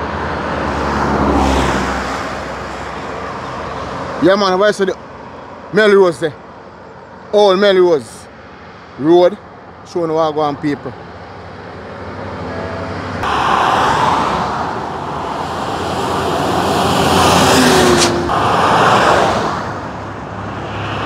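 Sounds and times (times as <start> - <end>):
cars and truck passing: 0.0 - 21.0
road and tyre noise: 0.0 - 21.0.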